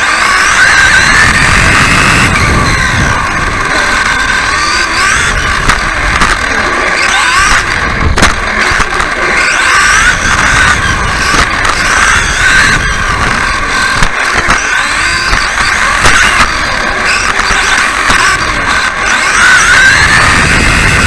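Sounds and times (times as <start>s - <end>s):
electric motor whine: 0.0s - 21.0s
low chassis rumble: 0.0s - 21.0s.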